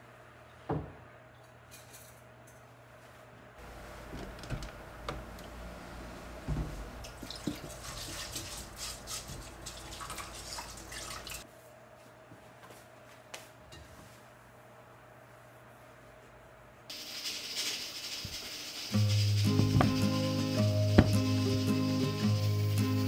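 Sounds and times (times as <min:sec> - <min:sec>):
water dripping in a steel sink: 0:07.0 - 0:11.4.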